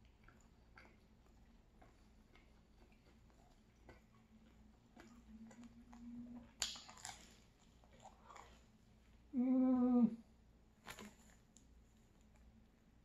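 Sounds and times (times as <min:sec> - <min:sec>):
biting and chewing pizza: 0:00.0 - 0:09.2
person humming mmm: 0:09.3 - 0:10.2.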